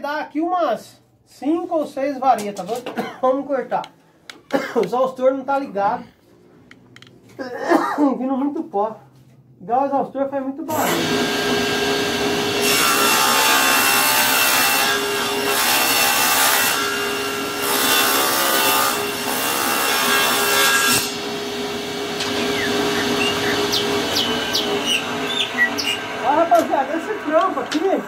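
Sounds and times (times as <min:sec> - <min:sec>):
table saw cutting wood: 0:10.7 - 0:28.0.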